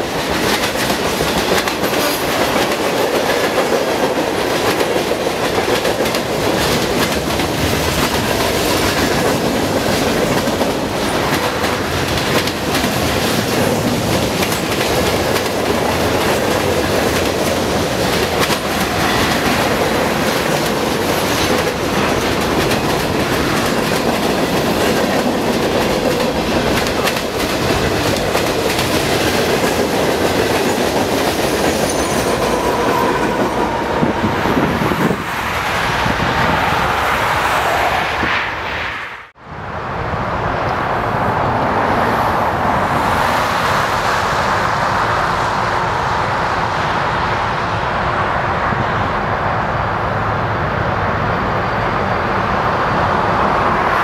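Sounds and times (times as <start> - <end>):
clickety-clack over rail joints: 0.0 - 35.3
freight train rolling past: 0.0 - 54.0.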